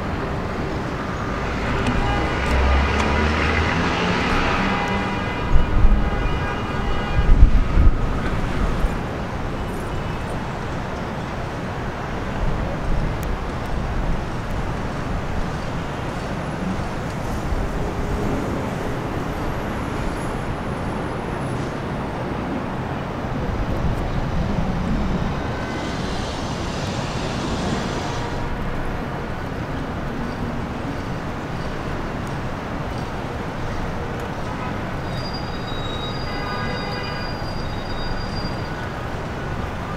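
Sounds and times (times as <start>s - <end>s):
city traffic: 0.0s - 39.9s
locomotive rumbling: 13.8s - 33.3s.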